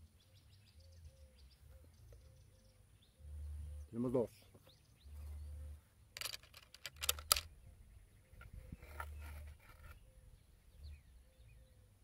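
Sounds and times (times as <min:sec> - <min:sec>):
sharp clicks and knocks: 0:06.2 - 0:07.5.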